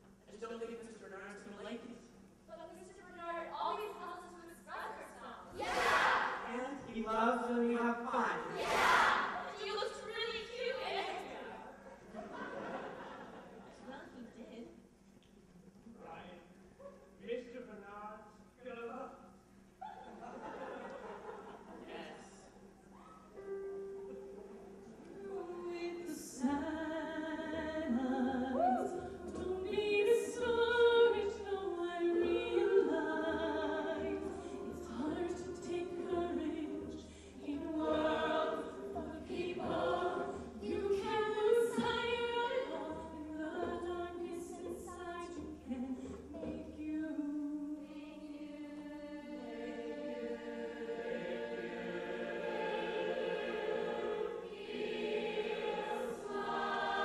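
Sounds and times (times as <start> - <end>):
choir singing in harmony: 5.5 - 6.5, 8.3 - 9.6, 24.0 - 44.8, 47.7 - 57.0.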